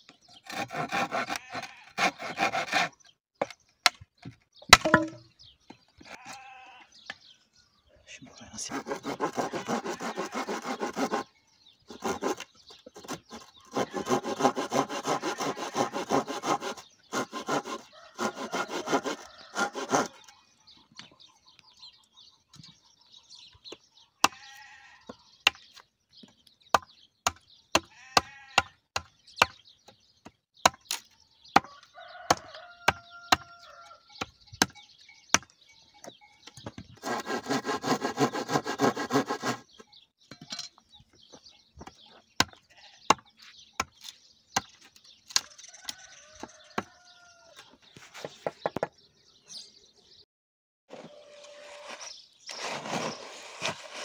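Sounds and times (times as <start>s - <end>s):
hand tool scraping concrete block: 8.6s - 11.3s, 11.9s - 20.3s, 36.6s - 39.9s, 50.9s - 54.0s.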